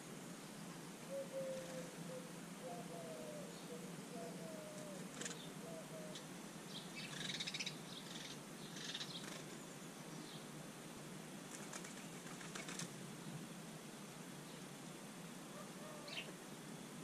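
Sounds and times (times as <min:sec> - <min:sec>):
bird wings fluttering: 0:05.1 - 0:05.4, 0:09.2 - 0:09.6, 0:11.5 - 0:13.0.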